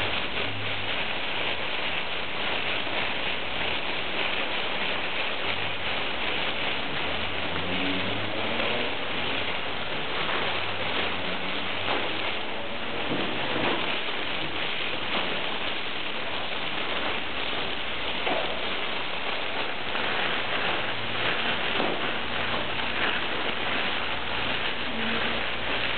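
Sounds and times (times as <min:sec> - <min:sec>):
plastic bags crumpling: 0:00.0 - 0:25.9.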